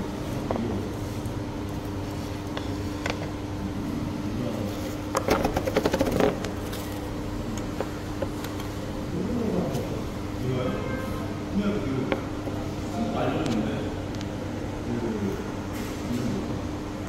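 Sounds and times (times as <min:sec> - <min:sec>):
fan humming: 0:00.0 - 0:17.0
rapid clattering clicks: 0:05.2 - 0:06.6.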